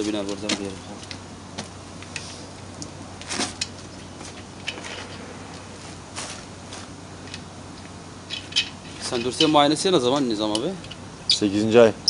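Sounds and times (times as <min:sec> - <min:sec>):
steady low hum: 0:00.0 - 0:12.0
hand tools clinking on metal: 0:08.3 - 0:11.0.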